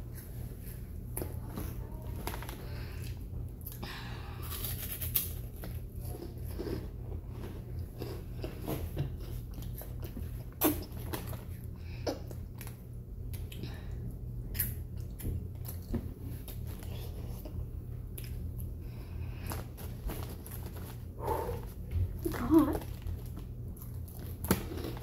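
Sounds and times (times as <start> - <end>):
steady low hum: 0.0 - 25.0
person chewing crunchy snacks: 4.4 - 11.4, 19.4 - 25.0.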